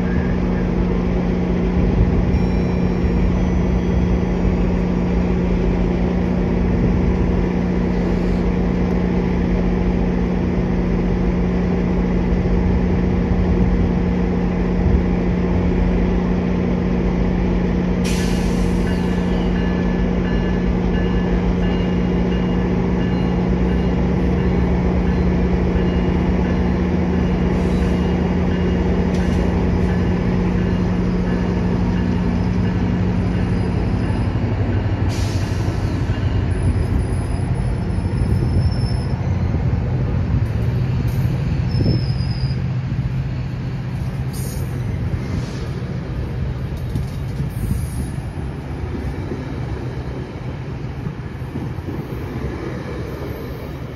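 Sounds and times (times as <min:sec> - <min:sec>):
train wheels on rails: 0:00.0 - 0:53.9
high wheel squeal: 0:02.3 - 0:05.0, 0:27.1 - 0:39.7, 0:41.1 - 0:42.8.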